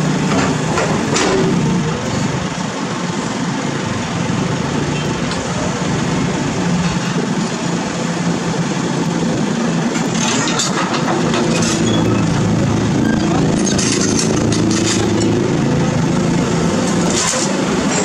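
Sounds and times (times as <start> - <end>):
dump truck engine pulling: 0.0 - 18.0
excavator diesel engine running: 0.0 - 18.0.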